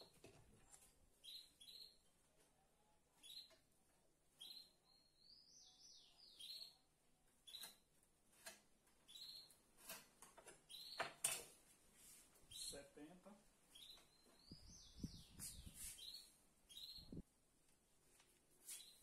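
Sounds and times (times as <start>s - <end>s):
small bird chirping: 0.0s - 2.2s, 2.9s - 3.7s, 4.3s - 7.9s, 9.0s - 9.7s, 10.6s - 11.2s, 12.5s - 13.1s, 13.7s - 17.2s, 18.7s - 19.0s.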